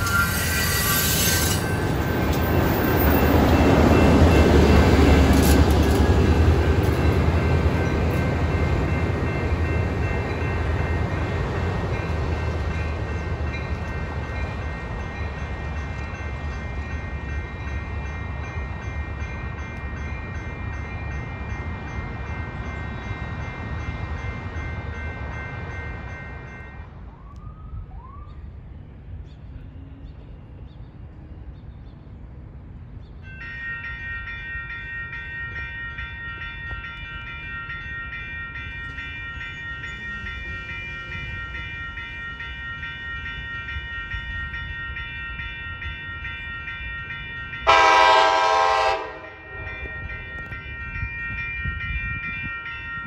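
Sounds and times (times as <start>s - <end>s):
high-pitched wheel squeal: 0.0s - 1.8s
train wheels on rail: 0.0s - 53.0s.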